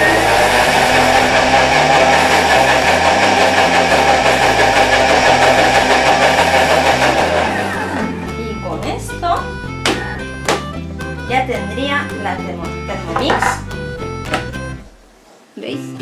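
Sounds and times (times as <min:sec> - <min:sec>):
food processor motor whirring: 0:00.0 - 0:08.4.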